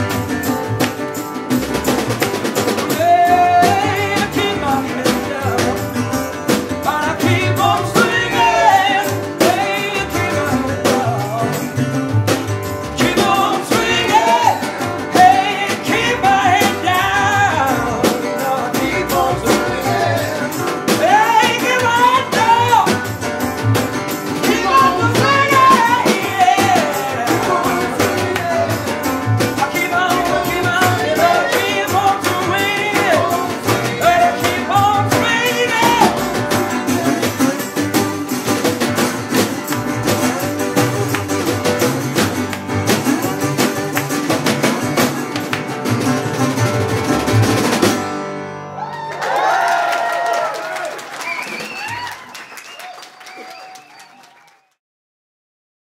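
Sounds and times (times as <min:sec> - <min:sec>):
double bass: 0:00.0 - 0:48.3
resonator guitar: 0:00.0 - 0:48.8
man singing: 0:02.8 - 0:12.1, 0:12.8 - 0:23.1, 0:24.3 - 0:44.7.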